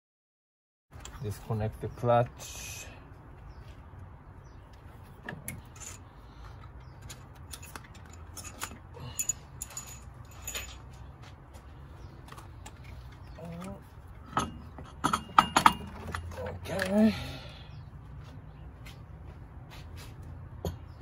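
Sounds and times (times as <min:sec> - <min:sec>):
clicks and rattles of hands working: 0:04.7 - 0:11.2, 0:12.1 - 0:17.0.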